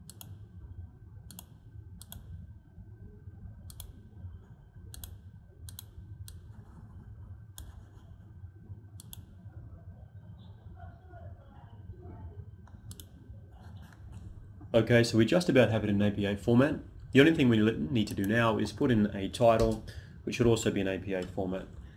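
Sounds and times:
computer mouse clicking: 0.0s - 0.4s, 1.3s - 2.4s, 3.6s - 4.1s, 4.9s - 6.9s, 7.5s - 8.1s, 9.0s - 9.4s, 12.7s - 13.2s
low hum: 0.0s - 21.9s.

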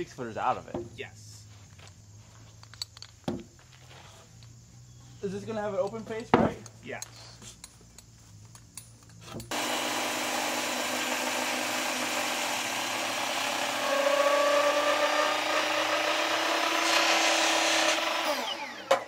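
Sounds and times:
circular saw cutting wood: 9.5s - 19.0s.

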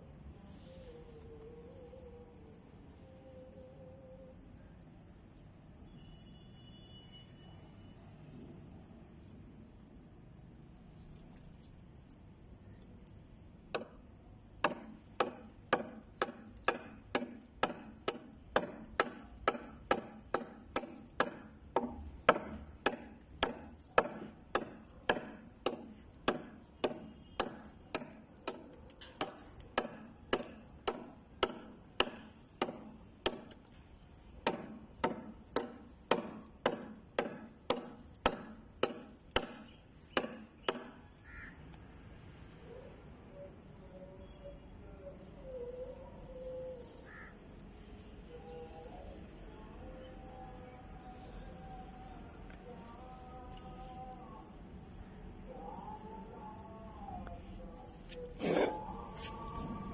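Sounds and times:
knife chopping into wood: 14.6s - 33.6s, 34.4s - 40.9s.

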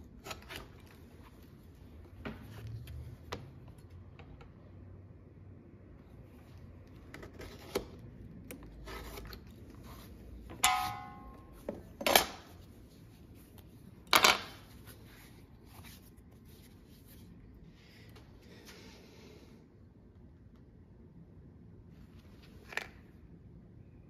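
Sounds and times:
metal clatter with ringing: 10.6s - 11.6s.

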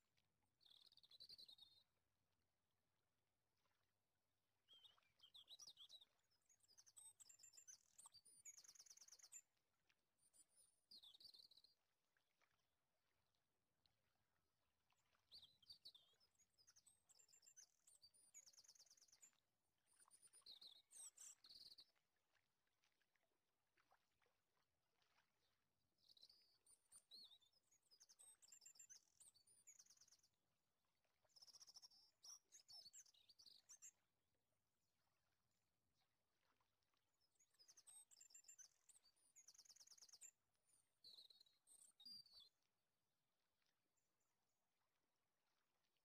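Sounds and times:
faint bird chirping: 0.6s - 1.9s, 4.6s - 12.6s, 14.9s - 22.0s, 26.0s - 30.4s, 31.2s - 34.2s, 37.2s - 42.6s.

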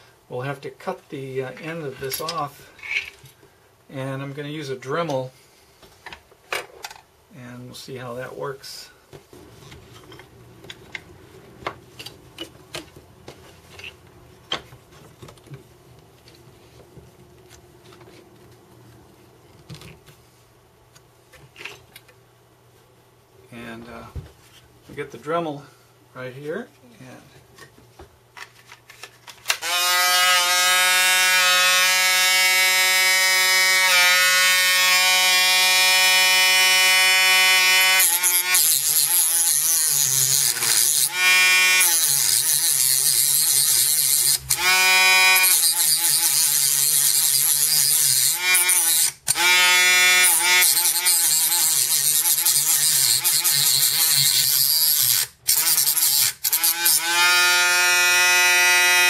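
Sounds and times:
rotary tool cutting whine: 29.5s - 59.0s.

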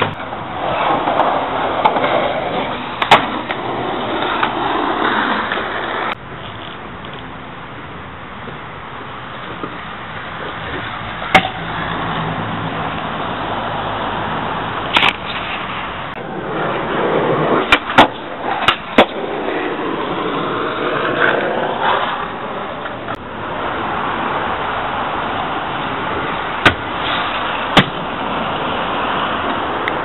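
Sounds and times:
hard wheels rolling over concrete: 0.0s - 6.8s, 13.4s - 30.0s
skateboard deck clacking on ground: 0.0s - 7.3s, 10.4s - 11.8s, 14.9s - 23.2s.

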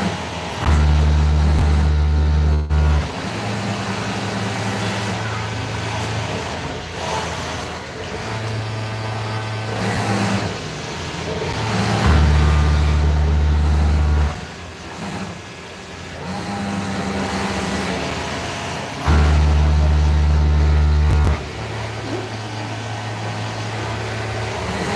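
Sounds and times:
sewing machine motor drone: 0.0s - 24.9s.

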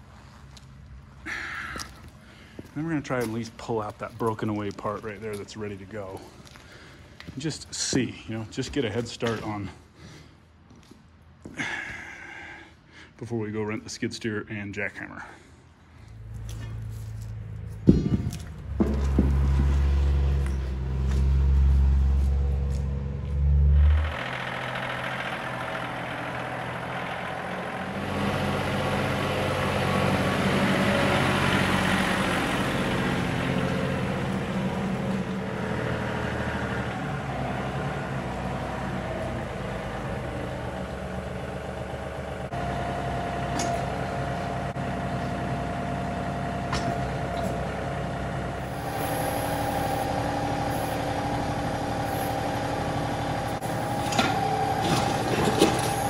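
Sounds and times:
tractor diesel engine running: 0.0s - 9.9s, 16.0s - 56.0s
sharp knocks: 17.8s - 20.0s.

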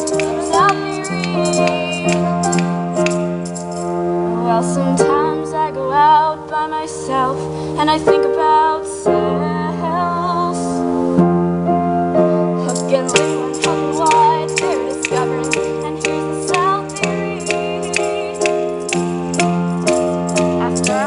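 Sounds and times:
woman singing with vibrato: 0.0s - 3.4s, 4.4s - 10.8s, 12.6s - 19.0s, 20.4s - 21.0s
sustained piano chords: 0.0s - 21.0s.

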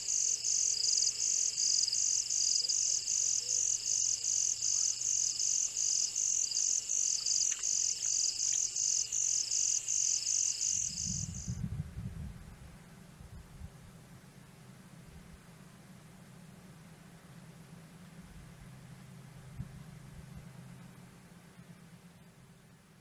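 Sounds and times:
night insects chirping: 0.0s - 11.6s.

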